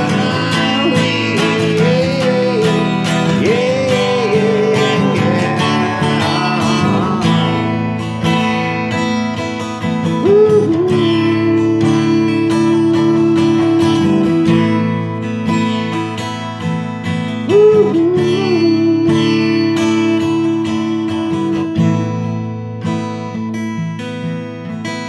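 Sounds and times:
man singing wordless notes: 0.0s - 8.9s, 10.2s - 15.0s
acoustic guitar strumming: 0.0s - 25.0s.

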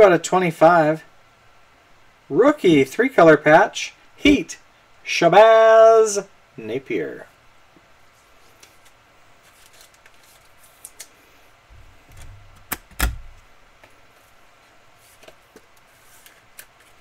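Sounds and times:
sharp click and thump: 12.1s - 13.4s.

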